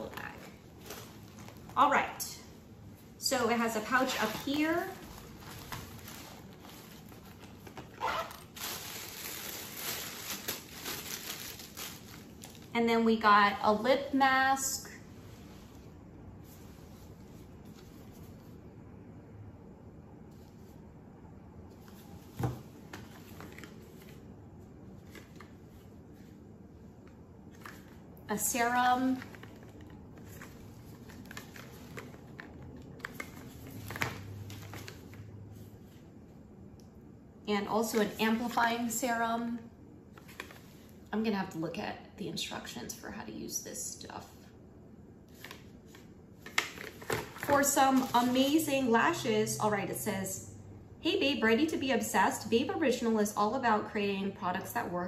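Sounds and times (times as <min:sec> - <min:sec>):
fabric bag rustling: 0:03.6 - 0:12.8.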